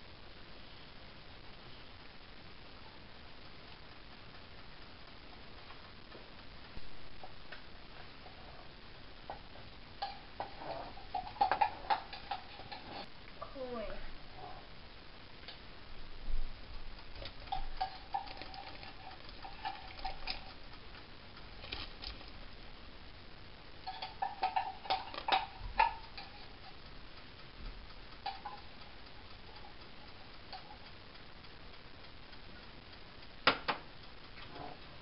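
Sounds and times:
wooden spoon tapping in tin can: 0:09.3 - 0:12.9, 0:16.7 - 0:20.7, 0:23.8 - 0:26.8, 0:27.7 - 0:30.8.

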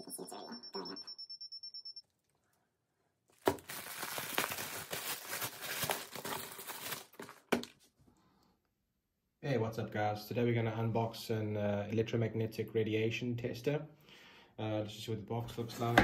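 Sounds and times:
packaging bag crinkling: 0:03.3 - 0:07.8.

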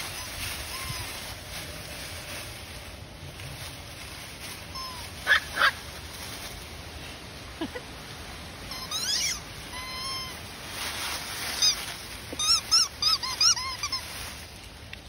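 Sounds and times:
puppies whining: 0:00.0 - 0:01.4, 0:08.7 - 0:10.4, 0:11.6 - 0:14.0
puppies yipping: 0:00.0 - 0:01.4, 0:04.7 - 0:05.8, 0:08.7 - 0:10.4, 0:11.4 - 0:14.2.

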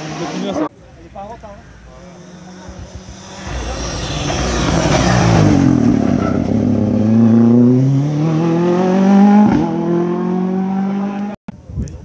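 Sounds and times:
rally car engine passing: 0:01.6 - 0:11.4
gearshift: 0:02.0 - 0:06.9.

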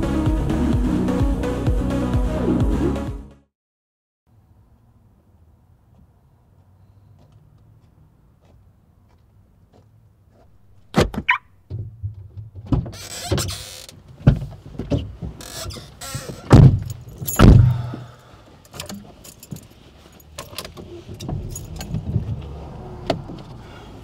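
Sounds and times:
car doors slamming: 0:16.4 - 0:18.2, 0:21.1 - 0:23.5.

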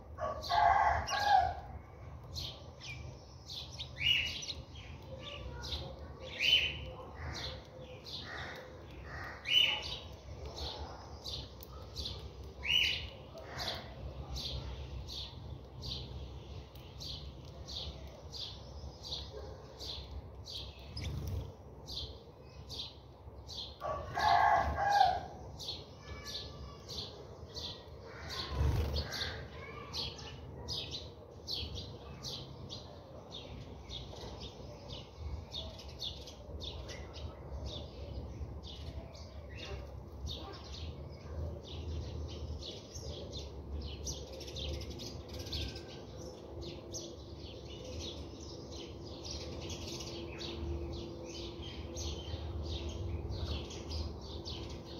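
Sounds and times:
sparrows chirping: 0:00.0 - 0:54.9.

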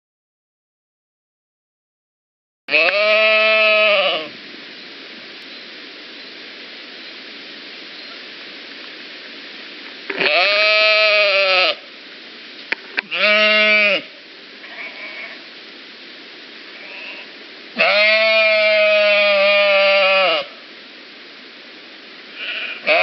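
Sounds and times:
animal bleating: 0:02.7 - 0:04.3, 0:10.2 - 0:11.8, 0:13.1 - 0:15.5, 0:16.8 - 0:20.6, 0:22.3 - 0:23.0
steady hiss: 0:02.7 - 0:23.0.

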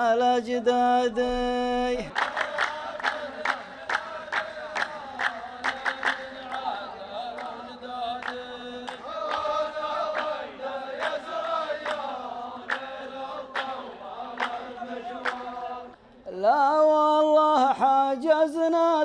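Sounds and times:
man singing: 0:00.0 - 0:02.2, 0:16.3 - 0:19.0
men chanting together: 0:00.0 - 0:19.0
hands clapping: 0:02.1 - 0:15.8.

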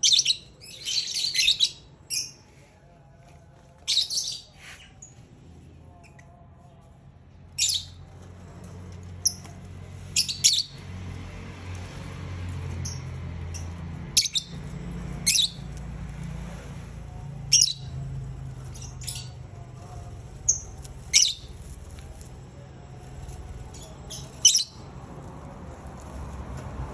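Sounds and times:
lovebirds chirping: 0:00.0 - 0:02.5, 0:03.8 - 0:05.2, 0:07.5 - 0:08.1, 0:10.1 - 0:10.9, 0:12.8 - 0:15.8, 0:17.5 - 0:22.3, 0:23.0 - 0:24.9.

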